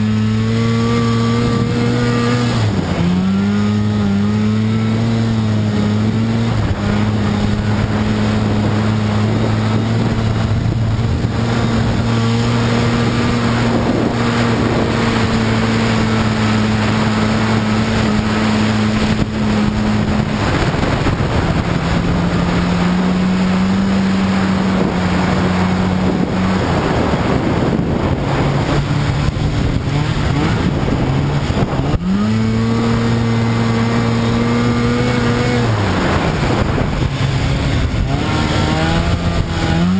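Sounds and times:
snowmobile engine running: 0:00.0 - 0:39.9.

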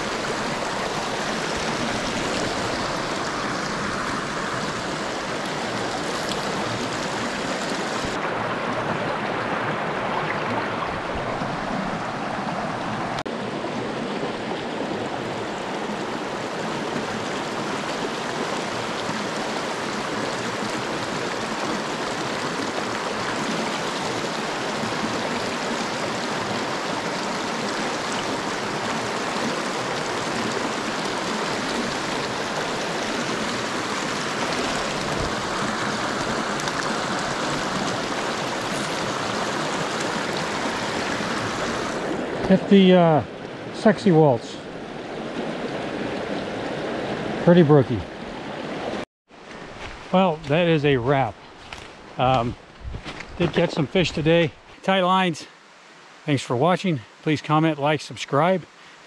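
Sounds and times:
stream water rushing over rocks: 0:00.0 - 0:59.0.

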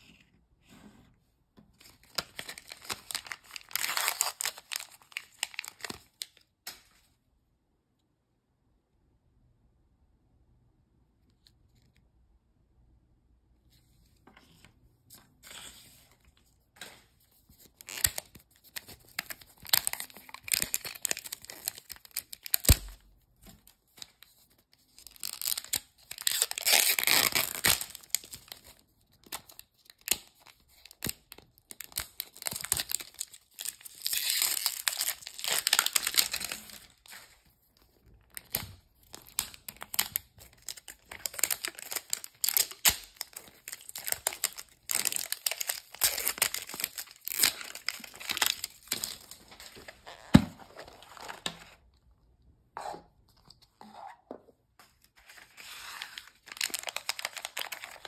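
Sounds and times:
plastic crinkling: 0:01.8 - 0:06.5, 0:17.5 - 0:23.0, 0:24.9 - 0:51.9, 0:55.1 - 0:58.0
plastic wrapper tearing: 0:01.8 - 0:06.5, 0:17.6 - 0:23.0, 0:23.6 - 0:37.4, 0:38.2 - 0:51.6, 0:55.2 - 0:58.0.

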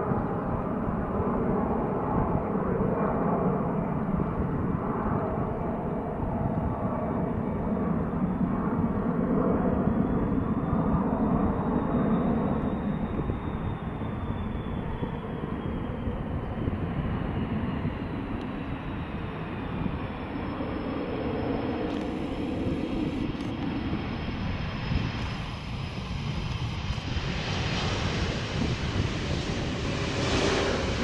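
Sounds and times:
jet engines rumbling: 0:00.0 - 0:31.0
high engine whine: 0:17.8 - 0:31.0.

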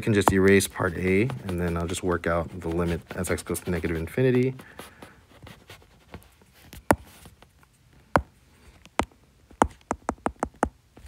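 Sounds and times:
stylus tapping on glass screen: 0:09.0 - 0:10.8.

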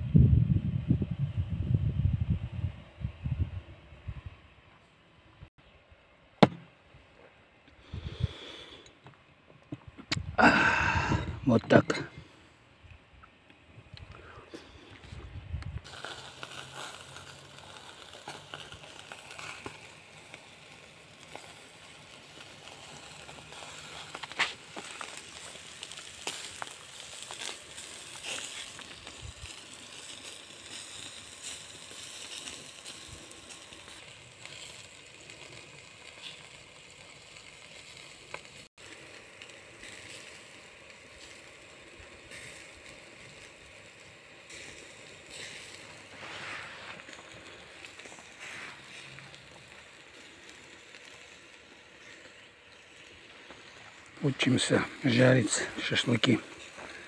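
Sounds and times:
coals crackling and popping: 0:06.4 - 0:57.0
meat sizzling on grill: 0:15.8 - 0:57.0.

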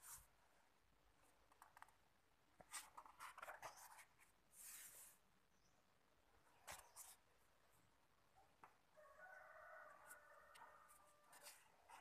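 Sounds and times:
paper pages rustling: 0:02.6 - 0:05.2, 0:06.6 - 0:07.2.

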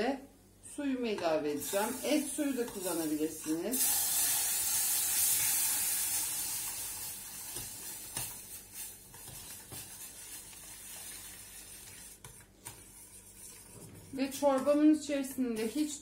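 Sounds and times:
water sizzling in hot pot: 0:01.6 - 0:12.2.

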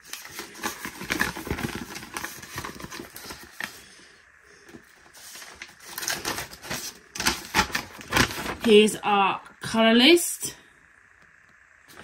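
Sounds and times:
plastic bags crinkling: 0:00.0 - 0:03.9, 0:04.7 - 0:08.9.

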